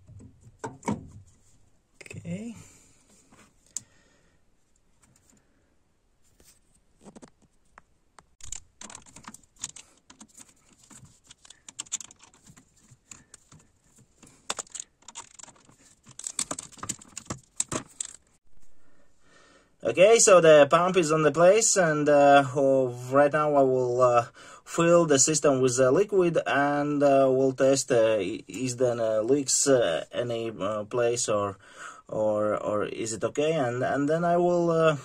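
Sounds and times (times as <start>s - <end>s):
screwdriver metal clicks and scrapes: 8.4s - 13.6s, 14.2s - 18.2s.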